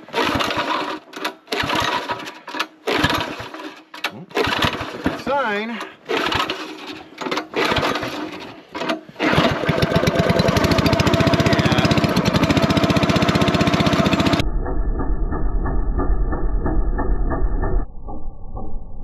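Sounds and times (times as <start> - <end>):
small engine running: 0.0 - 14.4
starter cord pulls: 0.1 - 14.4.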